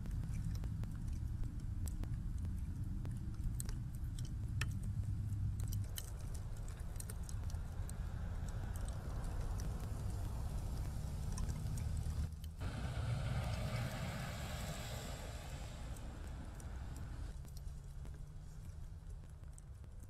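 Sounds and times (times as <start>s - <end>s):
slow traffic on snowy roads: 0.0s - 20.0s
small clicks and ticks: 0.0s - 20.0s
wind rumble: 4.8s - 18.2s.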